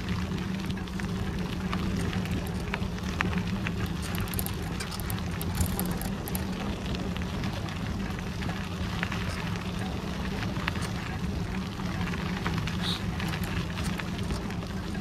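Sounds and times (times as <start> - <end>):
bicycle tyres rumbling on path: 0.0 - 15.0
small crackles and ticks: 0.0 - 15.0.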